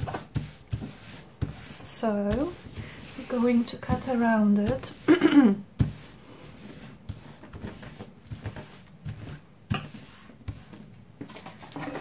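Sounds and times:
paper rustling and sliding: 5.8 - 12.0.

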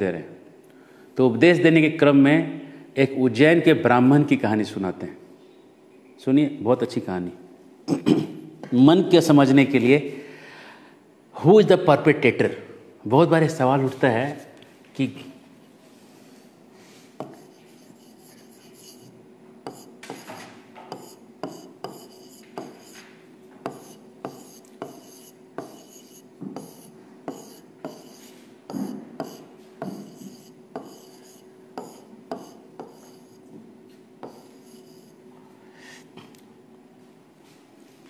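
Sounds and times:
faint steady hum: 0.0 - 38.0
stylus scratching on glass: 17.2 - 19.1, 19.7 - 20.3, 20.9 - 23.0, 23.7 - 28.3, 30.0 - 33.4, 34.3 - 35.2.

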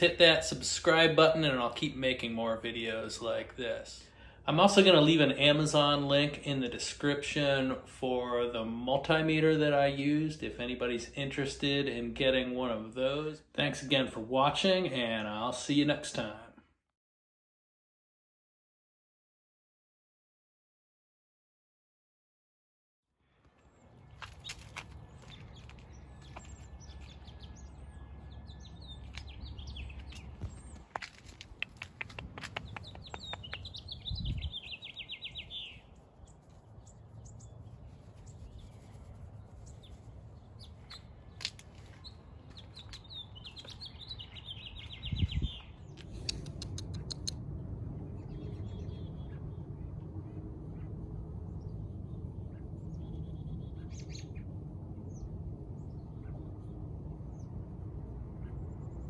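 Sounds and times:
songbirds chirping: 0.0 - 16.6, 23.2 - 59.0
rapid bird trill: 31.5 - 36.0.

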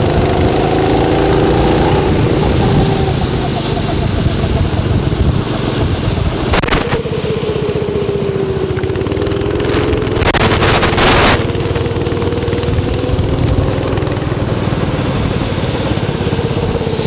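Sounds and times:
go-kart engines passing: 0.0 - 17.0.

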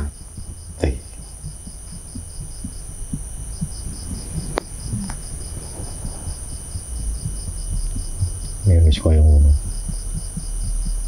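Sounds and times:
crickets chirping: 0.0 - 11.0
low rumble: 0.0 - 11.0.

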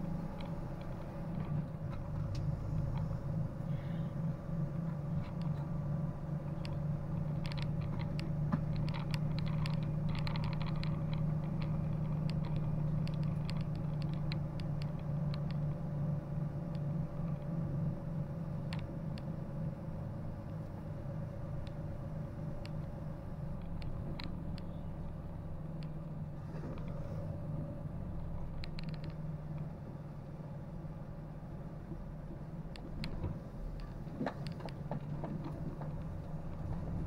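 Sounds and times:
steady mechanical hum: 0.0 - 37.0
light clicking and rattling: 4.7 - 17.9, 21.6 - 27.2, 28.1 - 29.7, 32.7 - 37.0.

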